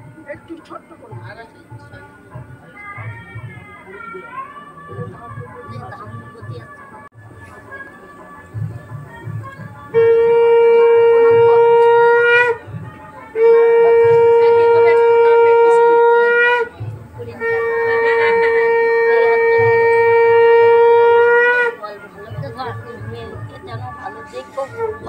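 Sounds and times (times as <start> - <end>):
conch shell blasts: 9.9 - 12.8, 13.4 - 21.8.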